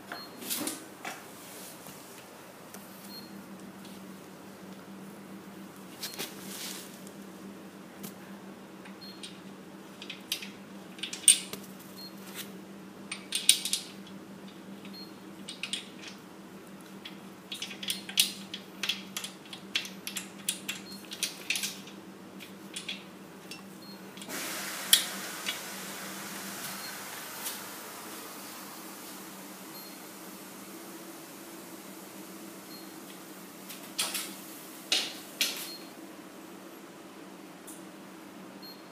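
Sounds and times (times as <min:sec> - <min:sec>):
steady low hum: 0:00.0 - 0:38.9
steady hiss: 0:24.3 - 0:35.7.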